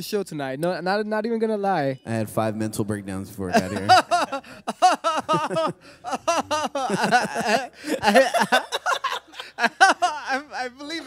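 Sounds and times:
man laughing into microphone: 3.5s - 10.9s.

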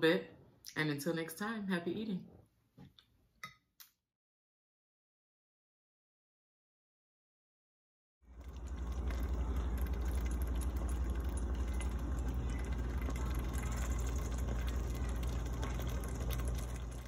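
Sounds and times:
faint crackles of cooking pot: 8.3s - 17.0s
steady low hum: 8.3s - 17.0s.

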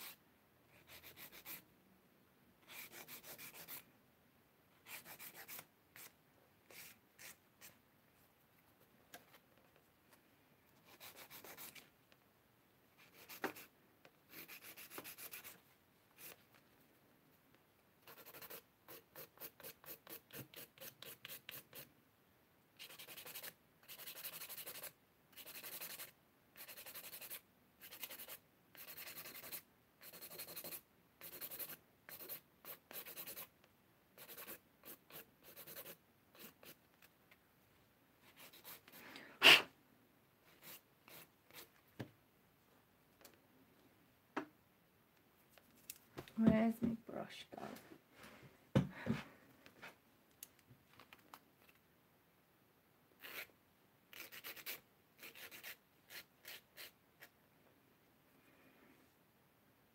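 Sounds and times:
nail file scraping nails: 0.8s - 1.6s, 2.6s - 3.8s, 4.8s - 7.4s, 10.8s - 11.8s, 14.3s - 15.6s, 18.0s - 21.9s, 22.8s - 33.5s, 34.2s - 36.8s, 38.2s - 39.6s, 40.5s - 41.7s, 53.2s - 53.5s, 54.1s - 57.3s.

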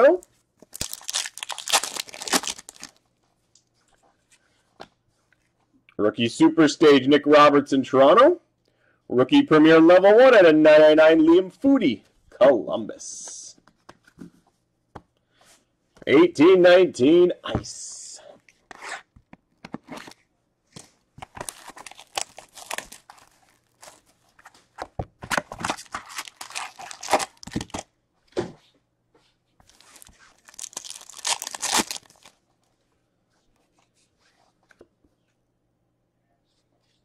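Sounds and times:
wrappers tearing and crinkling: 0.7s - 3.0s, 21.4s - 24.1s, 25.6s - 27.8s, 29.7s - 32.3s.

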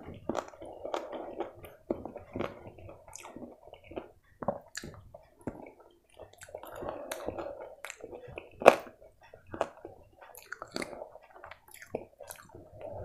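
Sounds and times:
wet chewing and lip smacking: 0.0s - 13.0s.

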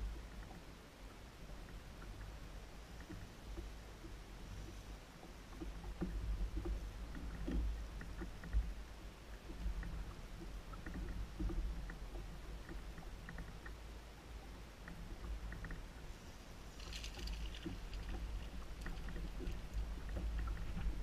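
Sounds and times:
low wind rumble on microphone: 0.0s - 21.0s
water lapping against boat hull: 0.1s - 21.0s
light ticks and clicks: 1.4s - 16.0s, 16.8s - 21.0s.

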